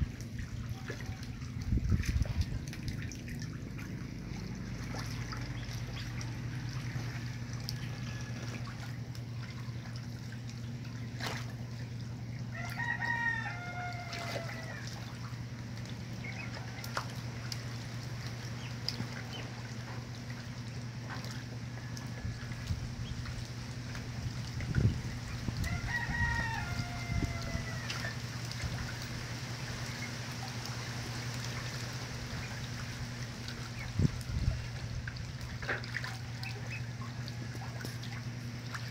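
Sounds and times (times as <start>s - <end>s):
low hum: 0.0s - 38.9s
rooster crowing: 7.1s - 8.5s, 12.5s - 15.0s, 25.6s - 28.1s.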